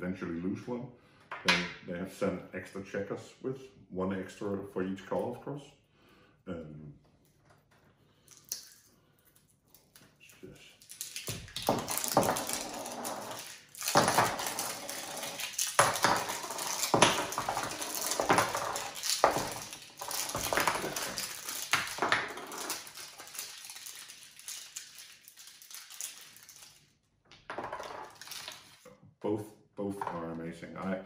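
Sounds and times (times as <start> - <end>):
checkers clacking together: 11.7 - 24.8.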